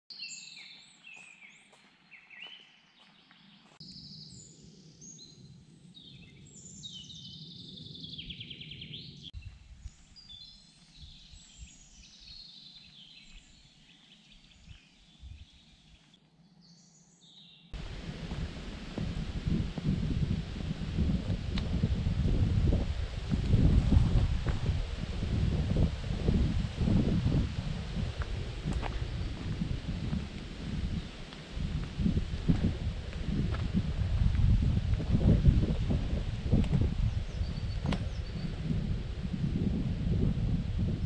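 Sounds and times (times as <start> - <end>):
birds chirping and trilling: 0.1 - 9.4, 28.7 - 30.2, 37.0 - 38.7
wind noise on microphone: 8.1 - 12.4, 14.5 - 15.7, 17.8 - 41.0.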